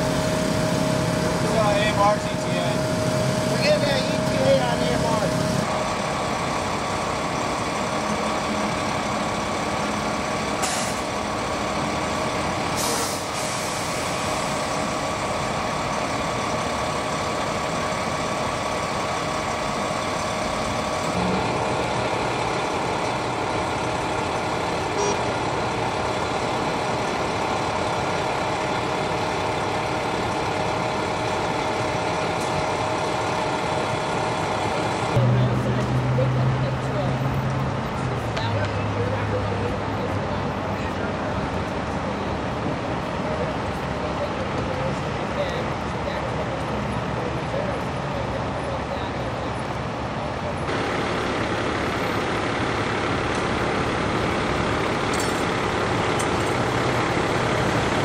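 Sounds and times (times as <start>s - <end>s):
constant whine: 0.0s - 12.8s, 40.8s - 58.0s
diesel engines idling: 0.0s - 58.0s.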